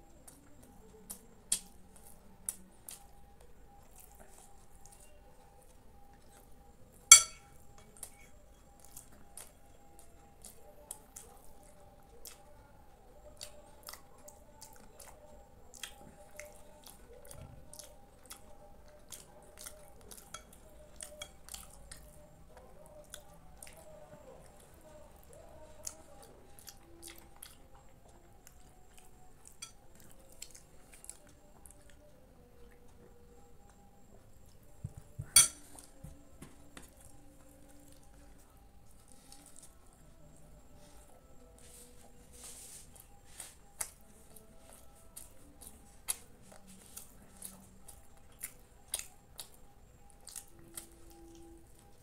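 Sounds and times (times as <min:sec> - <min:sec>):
wet chewing and mouth clicks: 0:00.2 - 0:06.6, 0:07.8 - 0:12.6, 0:13.2 - 0:36.0, 0:42.9 - 0:52.0
metal spoon clinking glass bowl: 0:07.1 - 0:07.5, 0:35.4 - 0:35.6.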